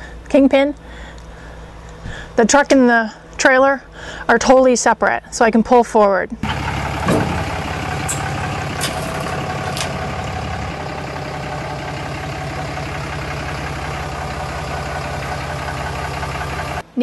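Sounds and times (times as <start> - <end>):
pickup truck engine rumbling: 6.4 - 17.0.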